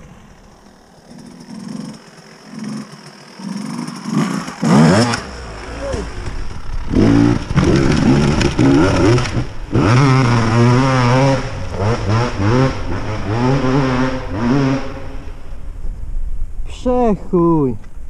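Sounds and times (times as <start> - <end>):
motorcycle engine revving: 0.0 - 15.8.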